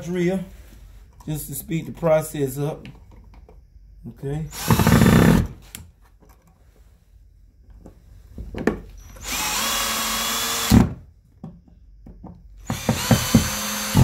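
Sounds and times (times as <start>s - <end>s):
cordless drill driving a screw: 4.5s - 5.5s, 9.0s - 10.9s, 12.6s - 14.0s.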